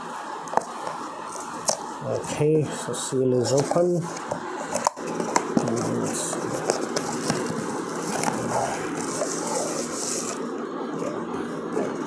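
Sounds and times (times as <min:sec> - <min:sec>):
plastic wrapping crinkling: 0:03.4 - 0:12.0
cardboard box rustling and scraping: 0:03.5 - 0:10.4.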